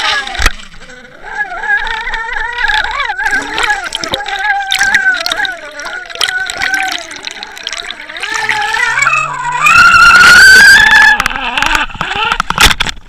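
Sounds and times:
boat motor drone underwater: 0.0s - 13.0s
water rushing past: 2.6s - 11.0s.

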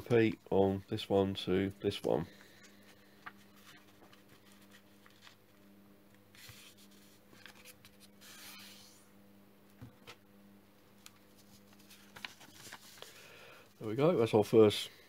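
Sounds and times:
low steady hum: 0.0s - 15.0s
paper rustling and sliding: 2.4s - 5.6s, 6.3s - 9.0s, 11.0s - 13.3s.

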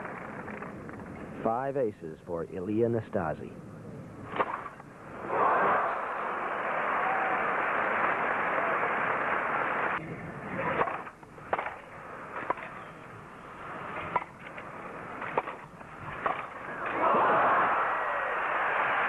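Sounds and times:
racket striking tennis ball: 4.3s - 4.8s, 10.6s - 12.8s, 15.2s - 16.6s
crowd applause: 5.2s - 10.0s, 16.7s - 19.0s.

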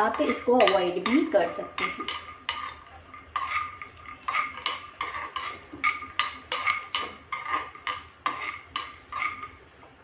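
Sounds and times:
metal spoon scraping frying pan: 0.0s - 9.7s.

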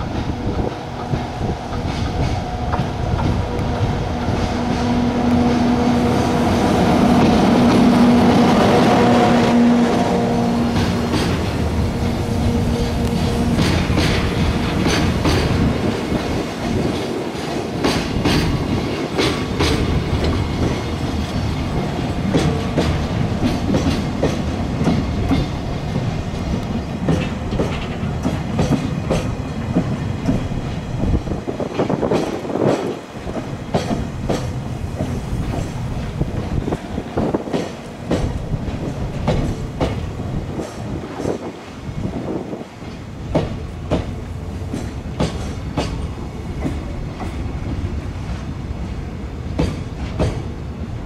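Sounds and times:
wheels clacking over rail joints: 0.0s - 50.7s
freight train rumbling: 0.0s - 51.0s.

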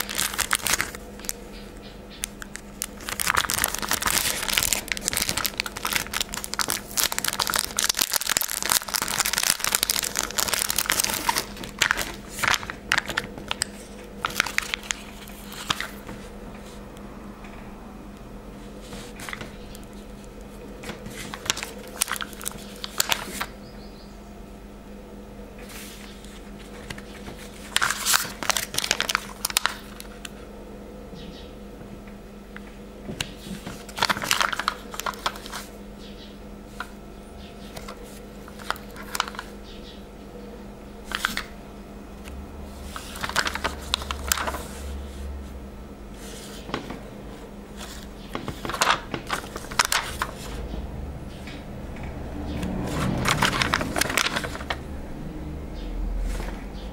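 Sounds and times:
foam stickers crinkling: 0.0s - 16.3s, 18.8s - 23.5s, 25.6s - 30.3s, 33.2s - 35.8s, 37.7s - 39.6s, 41.0s - 41.5s, 42.7s - 45.5s, 47.8s - 50.8s, 52.7s - 54.8s
steady low hum: 0.0s - 56.9s.

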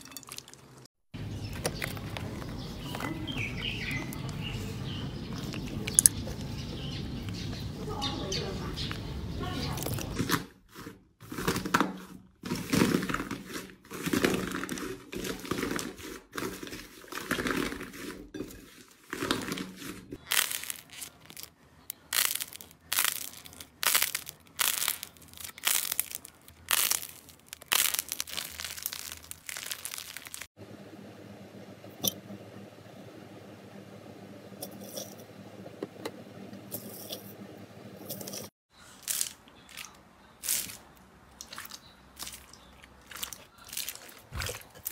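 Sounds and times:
crusty slime crackling and tearing: 19.1s - 30.5s, 39.0s - 44.9s
slime squeezing: 19.1s - 30.5s, 39.0s - 44.9s.

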